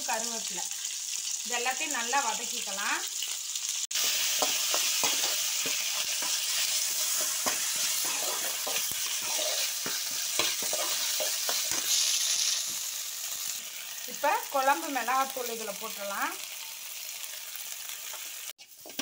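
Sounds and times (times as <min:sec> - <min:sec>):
vegetables sizzling in oil: 0:00.0 - 0:19.0
spatula scraping metal pan: 0:04.1 - 0:12.8.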